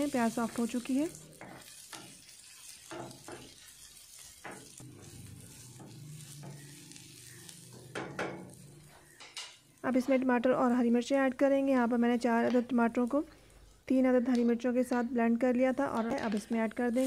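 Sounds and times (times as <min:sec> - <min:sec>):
onions sizzling in oil: 0:00.0 - 0:17.0
wooden spatula scraping pan: 0:01.4 - 0:09.3.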